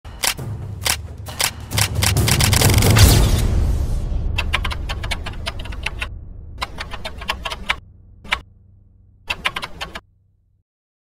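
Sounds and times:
steady low hum: 0:04.2 - 0:10.6
keyboard key clicks: 0:04.4 - 0:08.4, 0:09.3 - 0:10.0.

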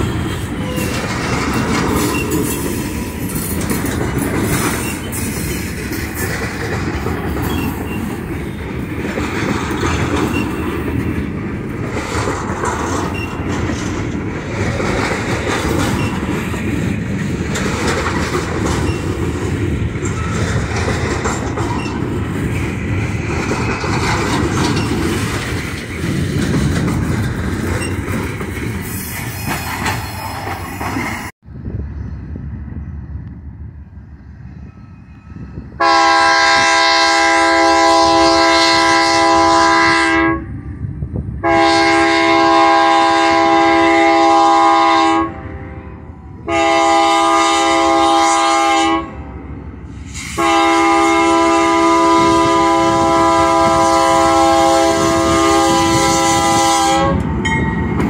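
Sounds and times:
train wheels clattering: 0:00.0 - 0:31.3, 0:49.9 - 0:58.0
locomotive air horn blasts: 0:35.8 - 0:40.6, 0:41.4 - 0:49.2, 0:50.2 - 0:57.3.

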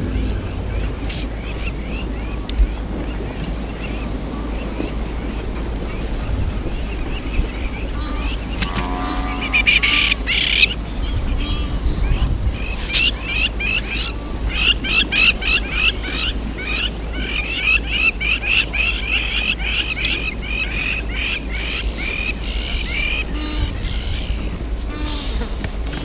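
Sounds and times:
low rumble: 0:00.0 - 0:18.1
ducks whistling: 0:00.0 - 0:25.6.

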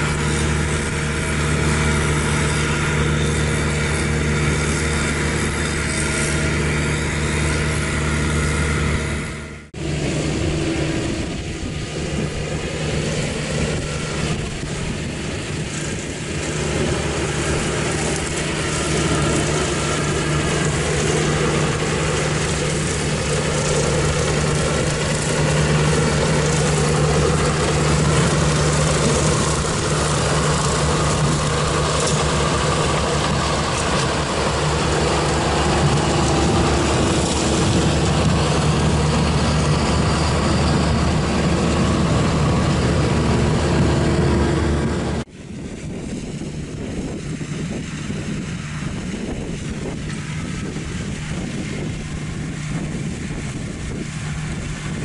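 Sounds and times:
harvester diesel engine: 0:00.0 - 0:55.0
tractor diesel engine: 0:00.0 - 0:55.0.

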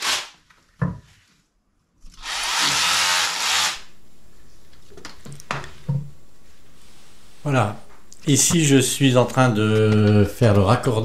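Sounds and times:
cordless drill running: 0:00.0 - 0:00.3, 0:02.1 - 0:03.9.

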